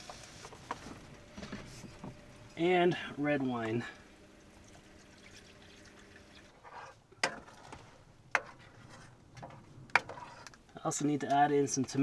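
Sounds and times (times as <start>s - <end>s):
wine pouring into a pan: 3.7s - 6.6s.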